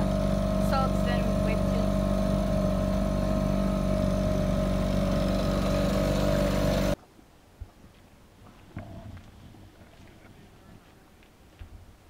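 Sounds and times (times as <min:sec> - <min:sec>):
outboard motor running: 0:00.0 - 0:07.0.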